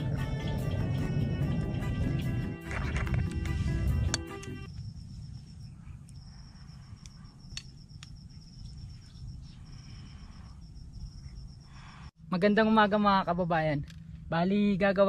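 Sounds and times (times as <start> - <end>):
background music: 0.0 - 4.7
low rumble: 0.0 - 6.8
insects trilling: 2.7 - 13.7.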